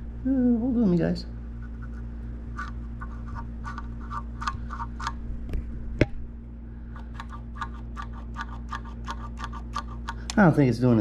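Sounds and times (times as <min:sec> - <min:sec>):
steady low hum: 0:00.0 - 0:11.0
throttle linkage clicking: 0:07.0 - 0:10.4.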